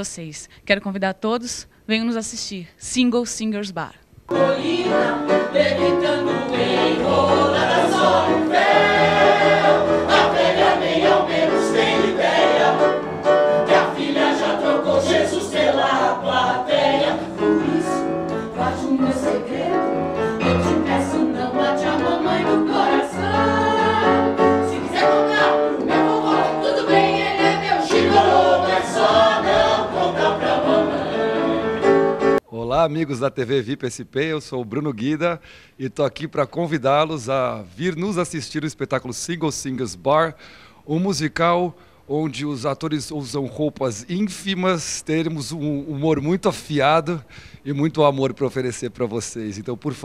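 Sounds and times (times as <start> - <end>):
cast singing in chorus: 4.3 - 31.9
musical accompaniment: 4.3 - 32.4.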